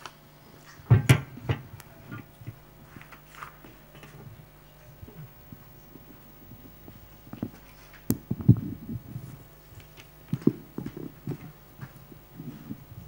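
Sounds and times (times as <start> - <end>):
microphone handling noise: 0.7 - 13.0.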